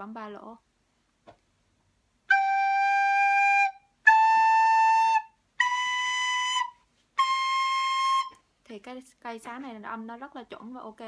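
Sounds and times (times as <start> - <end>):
recorder playing held notes: 2.3 - 8.4.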